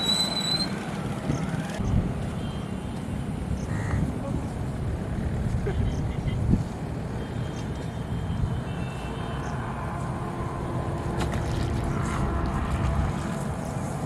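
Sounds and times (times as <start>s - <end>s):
fish splashing in water: 11.0s - 13.4s.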